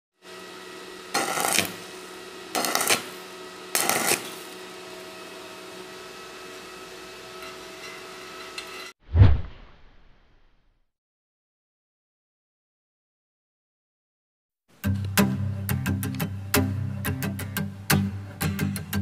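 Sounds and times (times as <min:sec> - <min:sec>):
welding arc crackle: 0:01.1 - 0:04.8.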